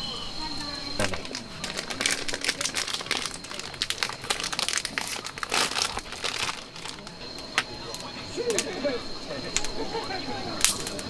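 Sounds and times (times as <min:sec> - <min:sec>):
plastic snack bag crinkling: 0:01.0 - 0:07.2.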